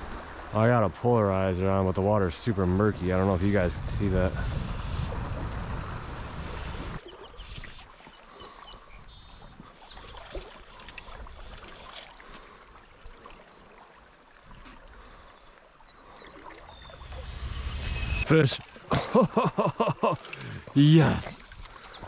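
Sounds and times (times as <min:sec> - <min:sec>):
creek water trickling: 0:00.0 - 0:22.0
small birds chirping: 0:07.0 - 0:11.0, 0:14.1 - 0:18.2, 0:21.2 - 0:22.0
low rumble: 0:16.6 - 0:18.8
short high trill: 0:16.8 - 0:18.7.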